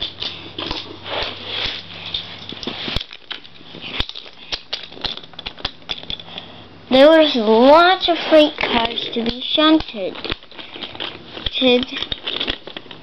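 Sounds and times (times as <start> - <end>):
toy train clicking and rattling: 8.0 - 13.0.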